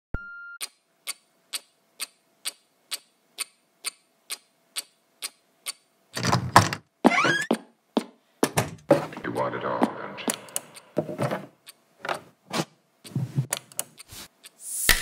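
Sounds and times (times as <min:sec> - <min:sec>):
clock ticking: 0:00.6 - 0:05.9, 0:09.8 - 0:11.8, 0:13.0 - 0:14.6.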